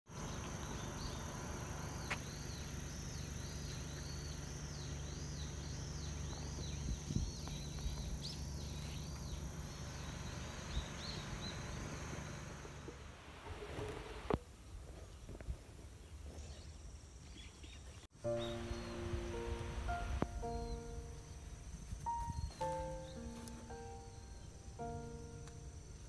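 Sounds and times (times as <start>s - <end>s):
insect arching chirp: 0.1s - 13.1s
insects trilling: 0.1s - 13.2s, 18.2s - 26.0s
wind rumble on microphone: 6.2s - 8.4s.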